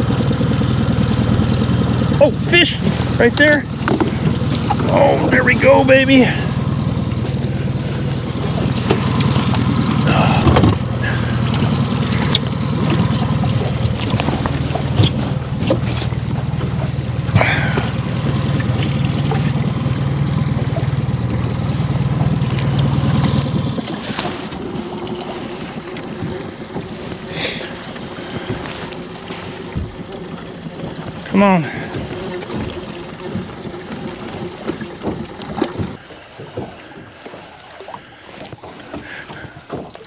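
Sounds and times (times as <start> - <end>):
boat motor droning: 0.0 - 40.0.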